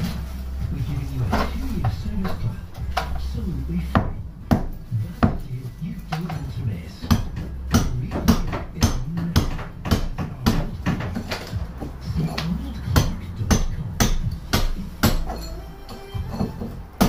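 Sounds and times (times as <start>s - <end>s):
low steady hum: 0.0s - 17.0s
hammer knocking on brick and steel: 3.9s - 5.4s, 7.0s - 15.5s.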